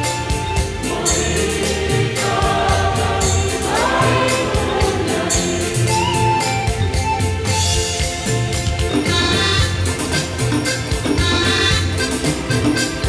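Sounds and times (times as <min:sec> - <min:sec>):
mixed choir singing in harmony: 0:00.0 - 0:07.0
instrumental accompaniment with beat: 0:00.0 - 0:13.0.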